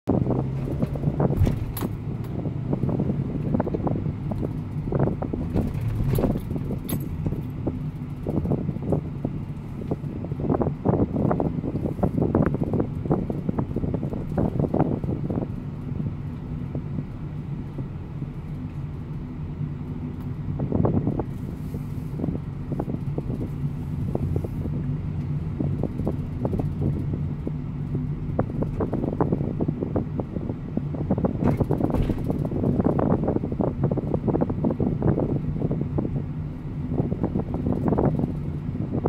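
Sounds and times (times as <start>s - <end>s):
knocks and rattles in car: 0.1s - 19.3s, 22.2s - 36.3s, 36.9s - 39.0s
car engine hum: 0.1s - 39.0s
road noise: 0.1s - 39.0s.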